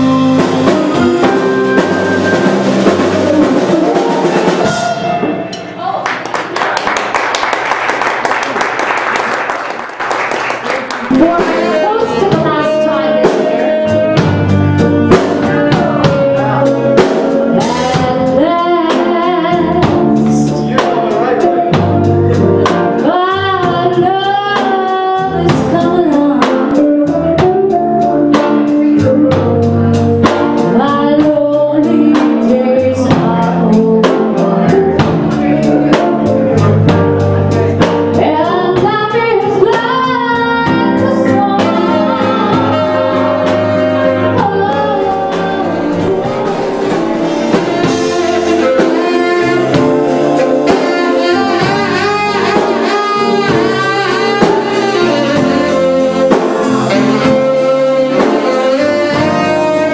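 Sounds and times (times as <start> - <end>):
steady drum beat: 0.0 - 5.4, 11.0 - 59.9
keyboard: 0.0 - 5.8, 11.0 - 59.9
jazz band playing: 0.0 - 5.9, 6.5 - 59.9
woman singing: 11.1 - 21.7, 22.6 - 27.8, 30.6 - 36.4, 38.1 - 46.9.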